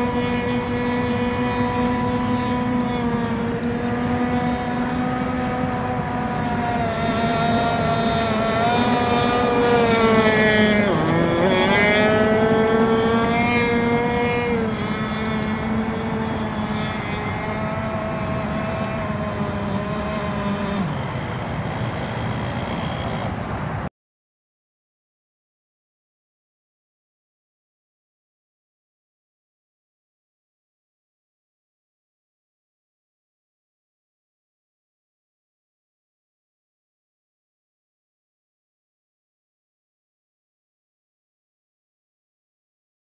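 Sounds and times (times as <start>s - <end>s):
model boat motor buzzing: 0.0s - 23.9s.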